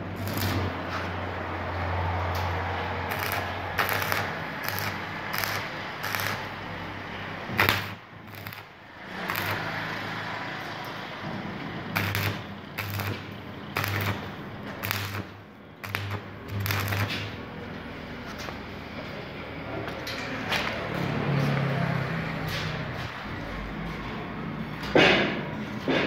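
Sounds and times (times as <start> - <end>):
arc welding crackle: 0.0 - 11.1, 11.8 - 17.5.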